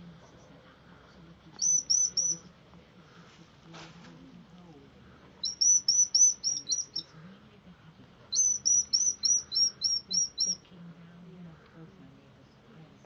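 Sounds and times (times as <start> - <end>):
hedgehog high-pitched peeps: 1.6 - 2.5, 5.4 - 7.1, 8.3 - 10.6.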